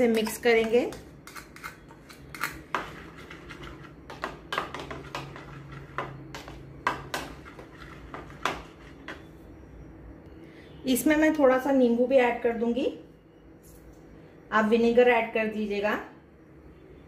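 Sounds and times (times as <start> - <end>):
spoon clinking against a bowl: 0.0 - 2.9.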